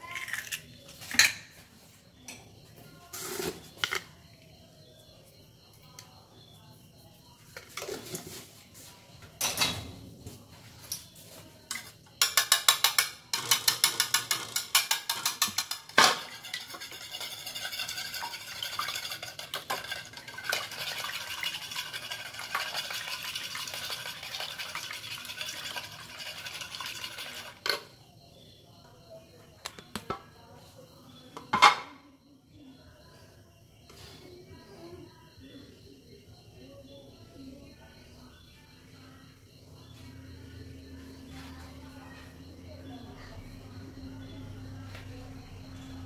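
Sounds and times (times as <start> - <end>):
spoon clinking on ceramic plate: 11.7 - 20.2.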